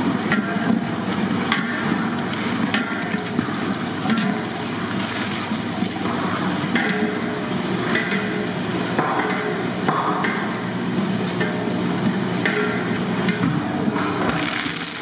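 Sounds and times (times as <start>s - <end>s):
chillies sizzling in hot oil: 14.4s - 15.0s.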